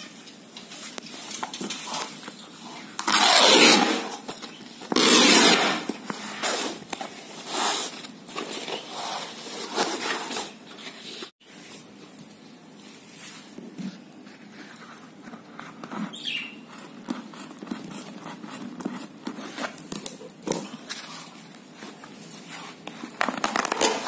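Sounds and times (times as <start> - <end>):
canvas tearing: 3.0 - 5.9.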